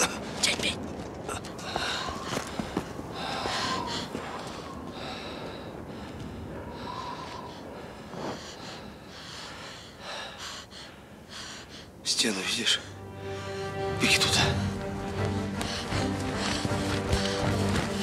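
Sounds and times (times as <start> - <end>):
people breathing hard: 1.3 - 12.0, 14.6 - 18.0.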